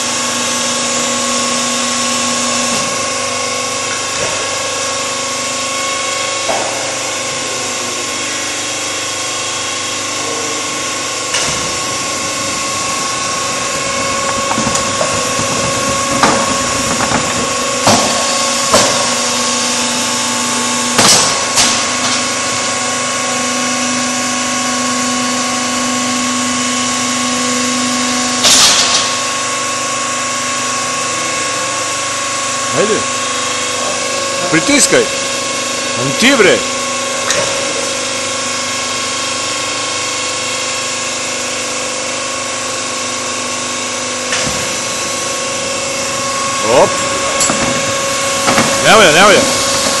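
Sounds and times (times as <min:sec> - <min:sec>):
low machine hum: 0:00.0 - 0:50.0
machine drone with high whine: 0:00.0 - 0:50.0.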